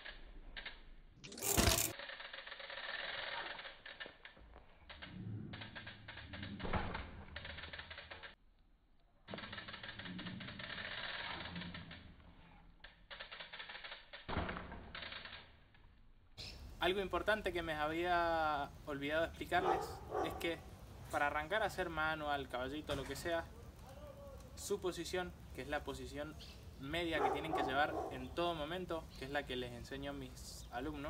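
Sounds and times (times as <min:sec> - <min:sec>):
bike freehub ticking: 0:00.0 - 0:08.4, 0:09.0 - 0:16.8
bike wheels landing thumps: 0:01.4 - 0:01.9, 0:14.3 - 0:15.0.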